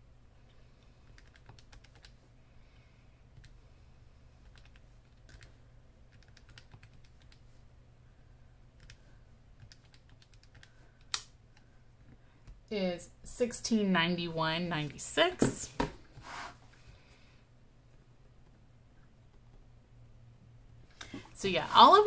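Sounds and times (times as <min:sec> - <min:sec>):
calculator buttons clicking: 0:01.0 - 0:02.2, 0:06.1 - 0:07.5, 0:09.6 - 0:11.7.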